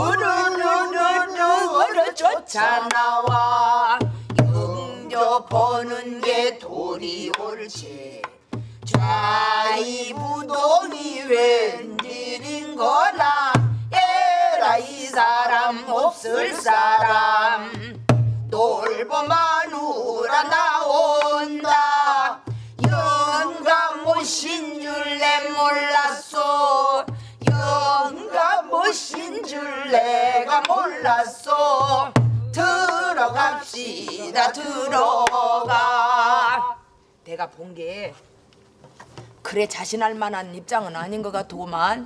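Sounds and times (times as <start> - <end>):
person singing wavering phrases: 0.0 - 8.3, 8.9 - 36.9
barrel drum thumps: 3.3 - 6.3, 17.8 - 19.4, 31.7 - 34.3.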